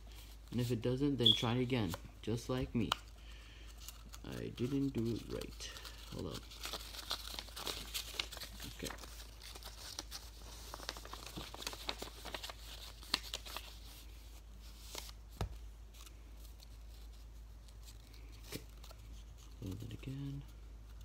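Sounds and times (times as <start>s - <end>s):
paper rustling and crinkling: 3.6s - 21.0s.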